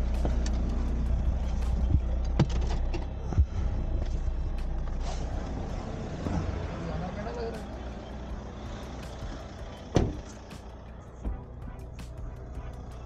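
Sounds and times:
vehicle knocks and thumps: 0.0s - 4.2s, 8.4s - 11.8s
vehicle rumbling on rough road: 0.0s - 13.0s.

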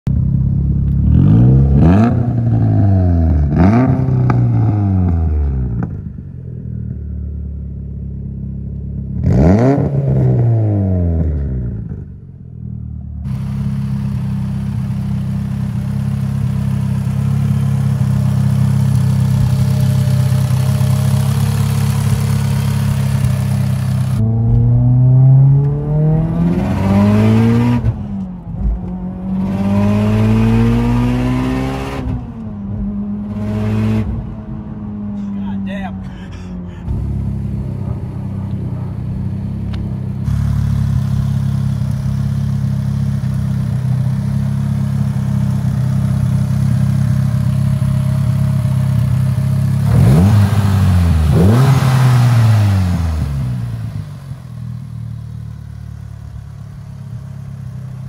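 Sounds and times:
car engine idling: 0.1s - 1.2s, 12.1s - 24.8s, 34.2s - 51.5s, 52.4s - 58.0s
car engine revving: 0.2s - 6.6s, 9.0s - 12.2s, 13.2s - 58.0s
car accelerating hard: 20.6s - 28.1s, 28.8s - 32.4s, 48.9s - 54.1s.

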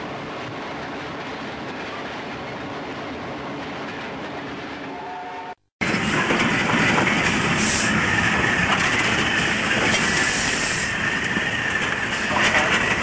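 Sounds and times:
train running noise: 0.0s - 13.0s
steam locomotive chuffing: 5.8s - 13.0s
steam hissing: 7.4s - 8.3s, 9.5s - 12.5s.

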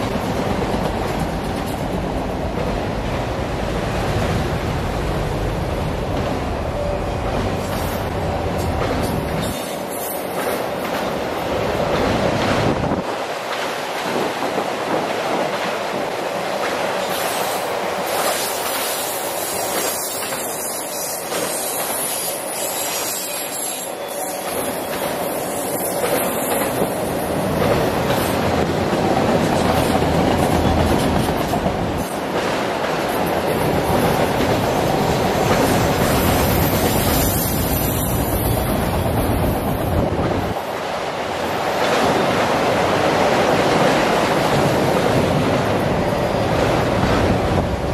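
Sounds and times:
train wheels rumbling on rails: 0.0s - 47.9s
high wheel squeal: 36.1s - 38.7s.

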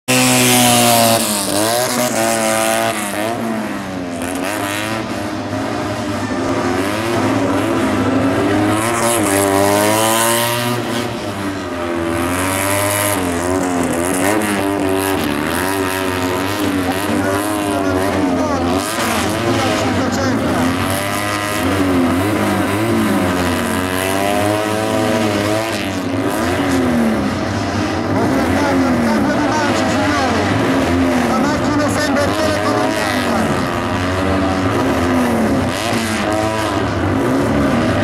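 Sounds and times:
car engine revving hard: 0.0s - 38.0s.

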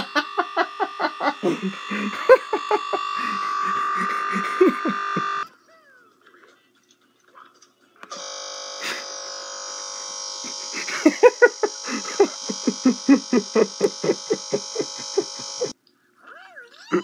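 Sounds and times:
short pulses: 0.0s - 5.4s, 8.1s - 15.7s
steady electronic buzz: 0.0s - 5.5s, 8.1s - 15.8s.

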